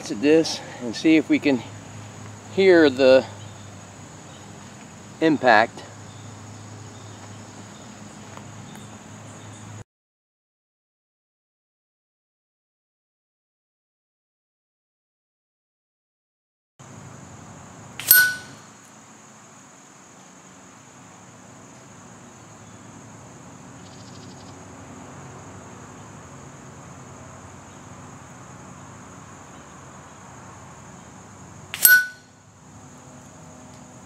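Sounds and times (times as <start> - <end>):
high insect drone: 0.0 - 9.8, 16.8 - 34.0
pellet hitting metal target: 18.0 - 18.6, 31.8 - 32.2.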